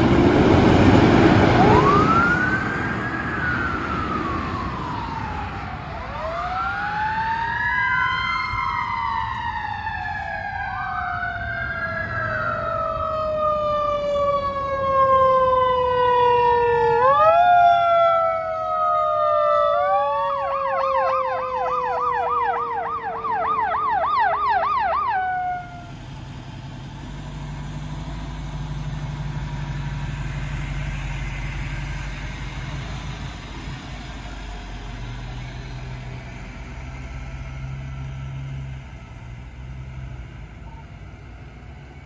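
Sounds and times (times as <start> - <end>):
ambulance engine rumble: 0.0 - 42.0
electronic siren yelp: 1.5 - 26.0.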